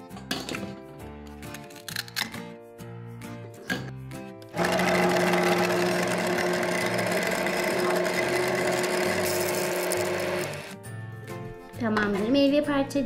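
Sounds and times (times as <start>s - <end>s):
toy blender motor whirring: 4.5s - 10.8s.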